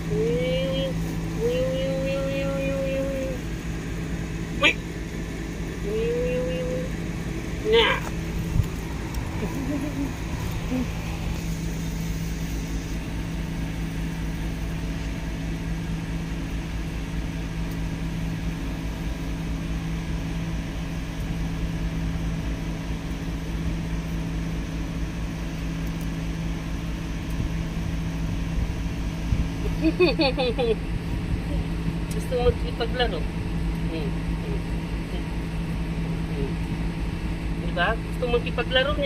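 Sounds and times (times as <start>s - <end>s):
mechanical hum: 0.0s - 39.0s.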